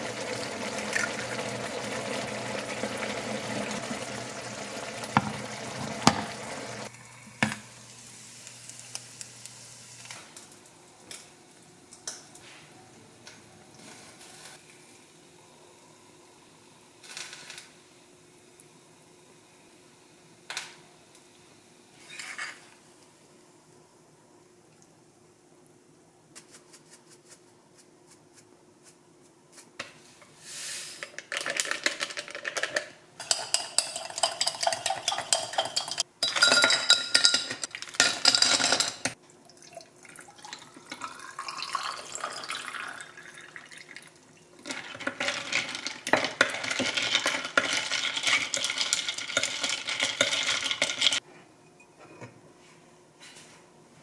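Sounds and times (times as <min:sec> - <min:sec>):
ice cubes clinking against glass: 0:31.3 - 0:39.2, 0:44.7 - 0:51.2
spoon stirring ice in glass: 0:31.4 - 0:39.2, 0:44.7 - 0:51.2
water poured over ice: 0:39.5 - 0:51.2.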